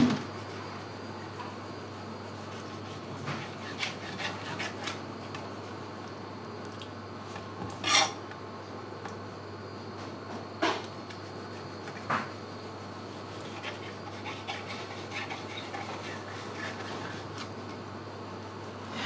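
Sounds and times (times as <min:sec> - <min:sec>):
knife scraping on cutting board: 0:00.0 - 0:05.0, 0:07.8 - 0:08.2, 0:10.7 - 0:17.5
steady low hum: 0:00.0 - 0:19.0.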